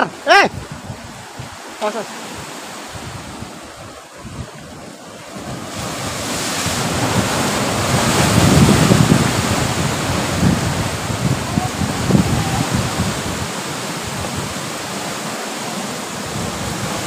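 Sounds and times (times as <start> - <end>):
wind buffeting microphone: 0.0 - 15.2, 16.1 - 17.0
sea surf rushing against rocks: 0.0 - 17.0.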